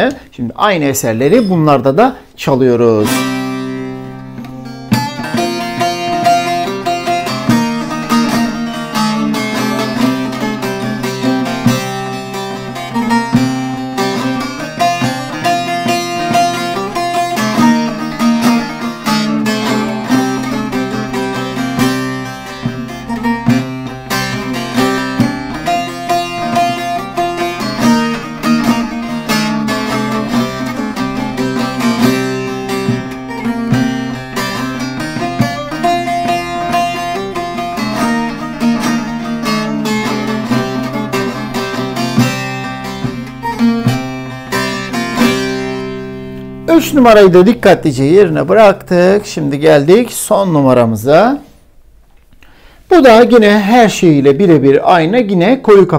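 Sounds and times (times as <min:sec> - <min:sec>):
plucked lute folk tune: 0:00.9 - 0:02.0, 0:02.6 - 0:50.3
open string drone: 0:03.0 - 0:46.4.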